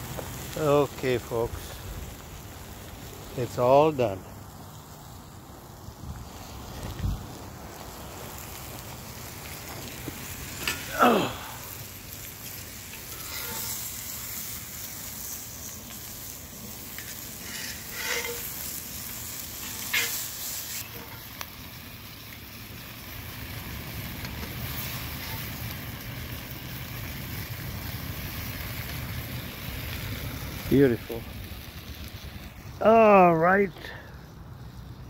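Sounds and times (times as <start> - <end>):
food sizzling on a grill: 0.0 - 35.0.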